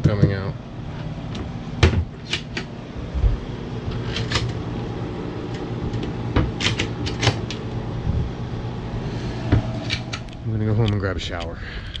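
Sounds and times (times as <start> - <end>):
steady low hum: 0.0 - 12.0
cupboard doors clicking and knocking: 1.8 - 2.4.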